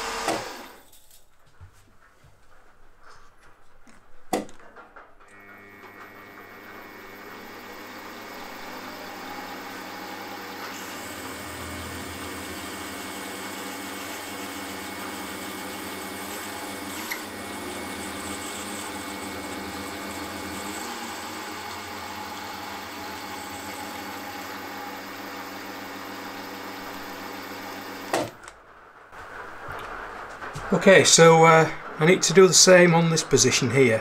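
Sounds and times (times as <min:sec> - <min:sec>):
milling machine cutting metal: 0:00.0 - 0:00.8, 0:05.3 - 0:28.4.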